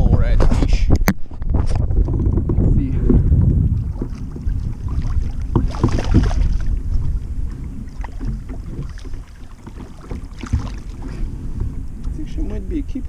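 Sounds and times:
wind rumble on microphone: 0.0 - 13.0
fish splashing in water: 3.8 - 11.3.

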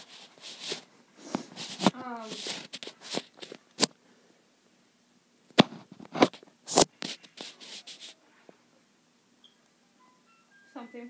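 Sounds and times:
close rubbing and scraping: 0.0 - 3.6, 5.8 - 8.2.

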